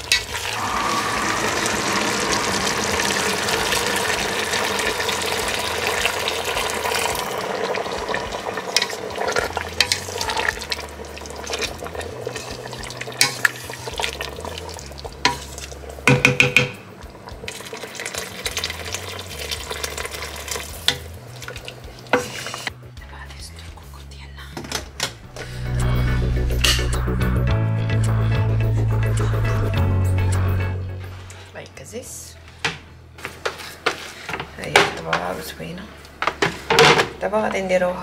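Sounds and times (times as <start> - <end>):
sizzling hiss from hot pot: 0.0 - 16.1, 16.9 - 22.7
knock on pot: 16.1 - 16.8
wooden spatula stirring in pot: 17.5 - 22.7, 33.2 - 35.4.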